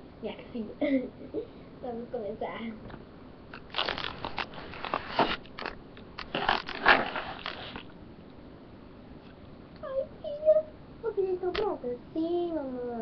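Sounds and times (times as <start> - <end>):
microphone handling rustle: 3.6 - 8.0.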